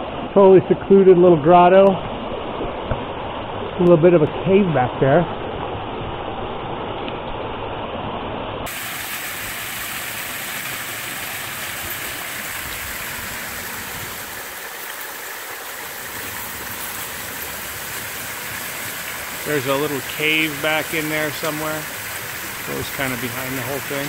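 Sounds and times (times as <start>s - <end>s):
waterfall splashing into pool: 8.6s - 24.0s.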